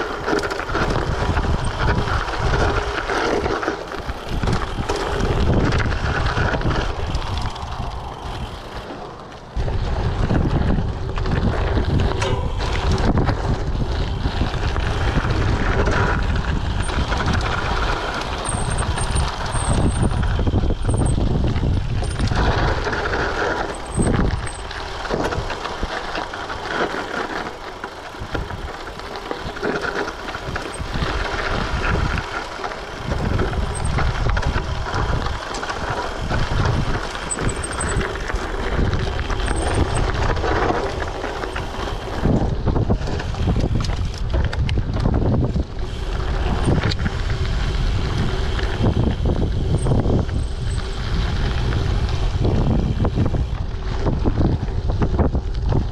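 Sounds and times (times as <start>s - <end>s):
wind on microphone: 0.0s - 8.8s, 9.5s - 25.9s, 28.1s - 55.9s
bike rattles and knocks: 0.0s - 55.9s
bike tyre rumble on dirt: 0.0s - 55.9s.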